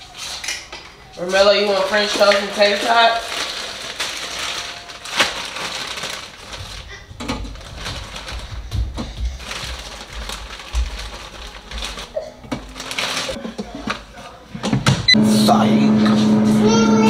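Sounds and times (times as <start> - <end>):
rustling: 1.2 - 14.4.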